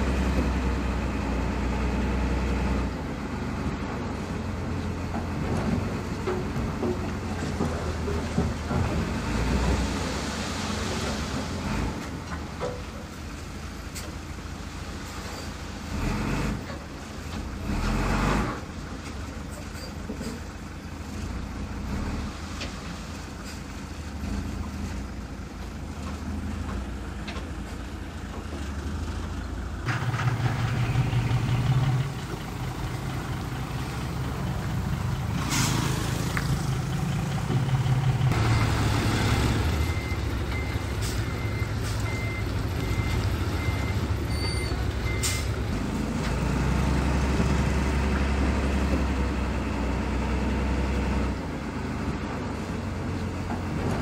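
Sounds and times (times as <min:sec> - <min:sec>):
diesel engines running: 0:00.0 - 0:54.0
reversing alarm beeping: 0:38.3 - 0:45.5.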